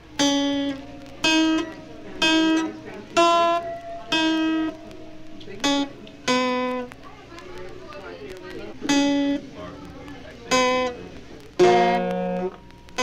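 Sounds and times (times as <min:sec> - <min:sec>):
instrument playing short notes: 0:00.2 - 0:06.9.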